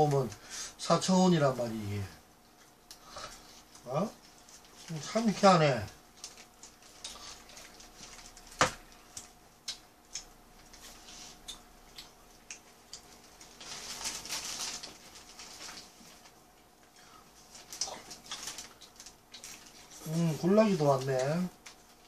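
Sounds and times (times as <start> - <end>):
faint steady hum: 0.0 - 22.0
paper wrapper rustling: 13.0 - 16.4, 17.4 - 22.0.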